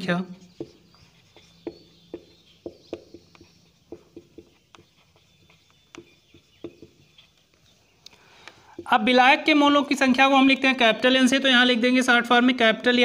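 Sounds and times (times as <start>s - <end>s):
marker pen on whiteboard: 0.0s - 7.8s, 8.6s - 9.6s.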